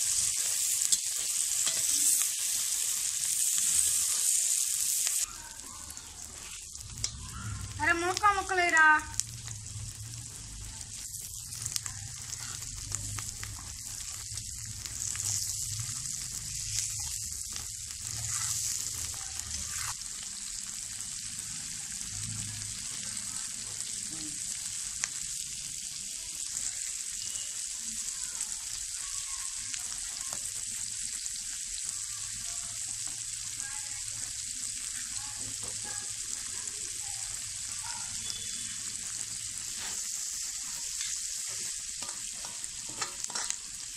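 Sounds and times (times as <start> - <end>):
vegetables sizzling in hot oil: 0.0 - 43.9
metal ladle scraping pan: 41.0 - 43.6.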